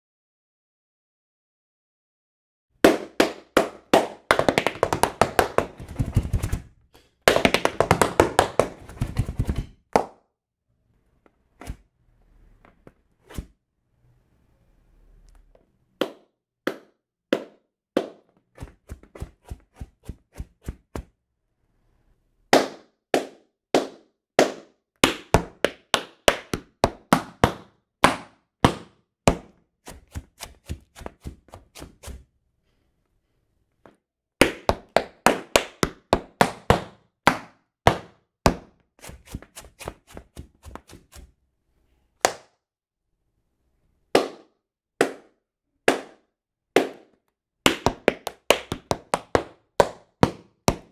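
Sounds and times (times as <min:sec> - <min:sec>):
tap shoes on wooden floor: 0:02.8 - 0:06.7, 0:07.3 - 0:10.1, 0:16.0 - 0:21.1, 0:22.6 - 0:32.2, 0:33.8 - 0:41.3, 0:46.8 - 0:50.9.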